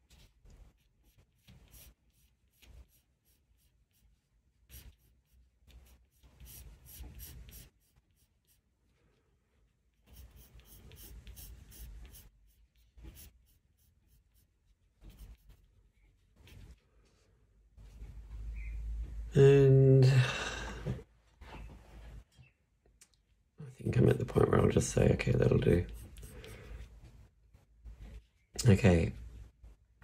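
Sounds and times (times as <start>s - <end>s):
pencil sketching on paper: 0.0s - 8.8s, 10.0s - 16.5s, 25.8s - 27.0s.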